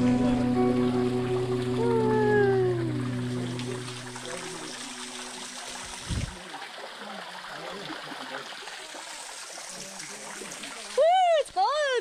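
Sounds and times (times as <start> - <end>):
background music: 0.0 - 5.9
river water flowing over rocks: 0.0 - 12.0.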